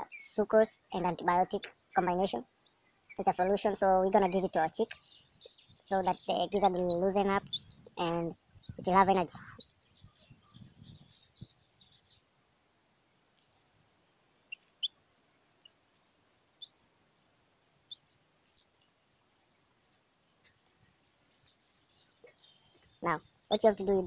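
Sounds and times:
chick peeping: 0:00.0 - 0:02.4, 0:03.0 - 0:18.8, 0:20.4 - 0:24.0.

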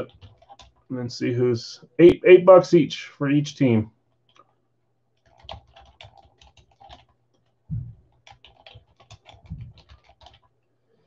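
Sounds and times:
typing on computer keyboard: 0:00.0 - 0:00.9, 0:04.2 - 0:04.6, 0:05.2 - 0:10.5.

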